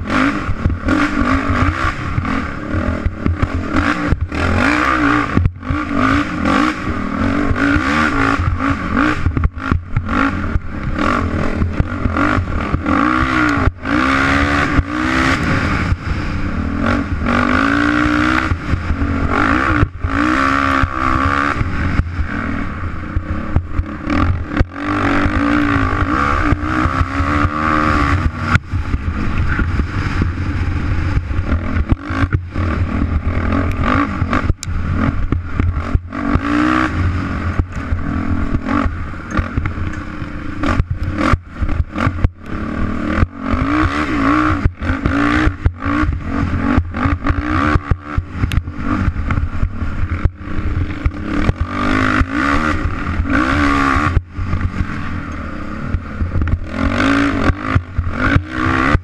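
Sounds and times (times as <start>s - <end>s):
bike rattling over bumps: 0.0s - 59.0s
dirt bike engine revving: 0.0s - 59.0s
wind buffeting microphone: 26.5s - 36.1s.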